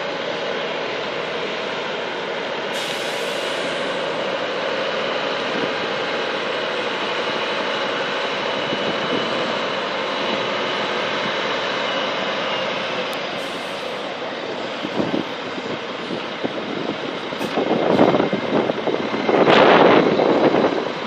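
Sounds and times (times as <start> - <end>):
diesel truck engine running: 0.0 - 21.0.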